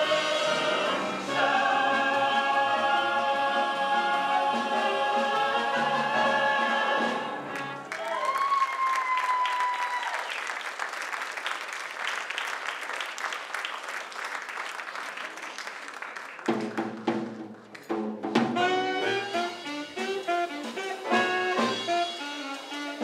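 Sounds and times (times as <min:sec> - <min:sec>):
brass-led jazzy band music: 0:00.0 - 0:08.0, 0:18.3 - 0:23.0
audience applause: 0:07.4 - 0:18.1.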